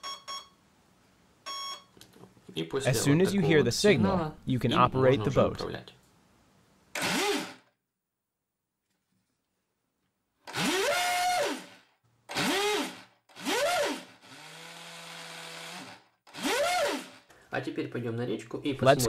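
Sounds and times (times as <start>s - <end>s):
small electric motor whining: 12.3s - 17.2s.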